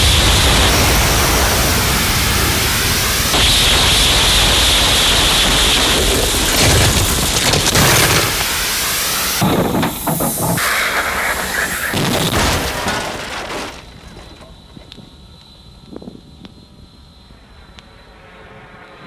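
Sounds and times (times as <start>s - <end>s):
rocket motor roar: 0.0s - 14.4s.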